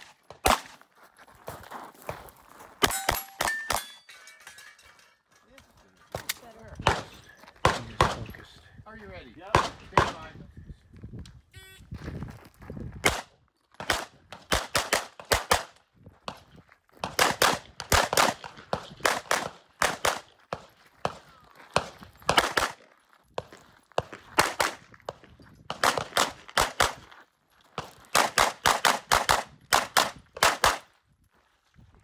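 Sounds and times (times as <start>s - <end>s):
carbine gunshots: 13.0s - 15.8s, 17.0s - 21.2s, 21.8s - 22.8s, 25.7s - 27.0s, 28.1s - 30.9s.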